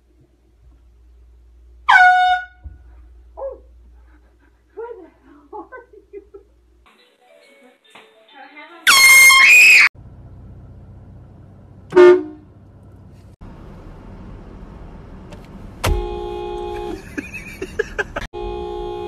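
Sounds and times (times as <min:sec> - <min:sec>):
car horn blaring: 0:01.9 - 0:02.8, 0:08.9 - 0:09.9, 0:11.9 - 0:12.5, 0:15.8 - 0:19.0
loud shrill pitch-bending sound: 0:08.9 - 0:09.9.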